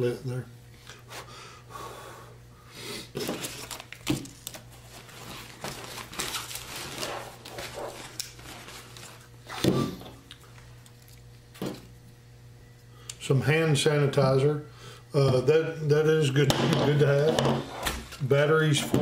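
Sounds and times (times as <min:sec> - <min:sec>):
rustling and crinkling: 0:03.2 - 0:09.5
items knocking on a table: 0:11.6 - 0:11.9, 0:16.5 - 0:17.7.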